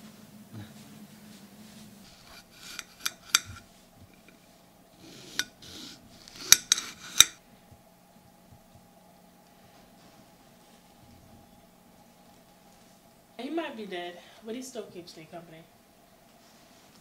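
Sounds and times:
knife clicking on ceramic plate: 2.2 - 3.6, 5.3 - 7.4.

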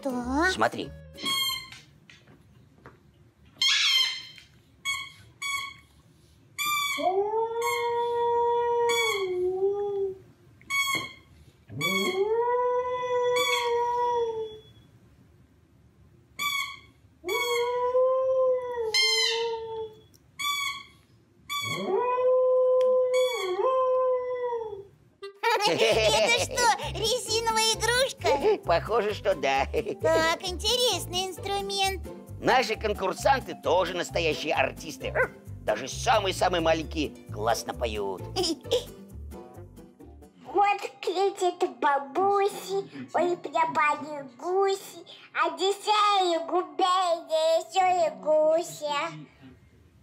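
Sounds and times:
dog howling: 0.6 - 1.3, 21.7 - 24.9
rubber squeaky toy squeaks: 0.9 - 1.9, 3.6 - 5.9, 6.6 - 8.0, 8.9 - 9.4, 10.7 - 12.2, 13.4 - 13.9, 16.4 - 17.8, 18.9 - 19.7, 20.4 - 21.9, 23.1 - 23.6.

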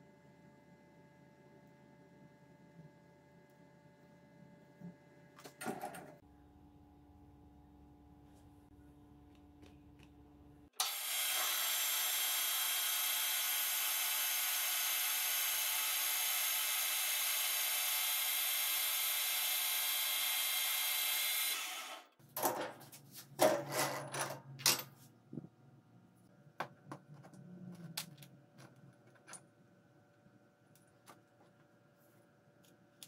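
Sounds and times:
lathe cutting steel with whine: 10.8 - 22.1.

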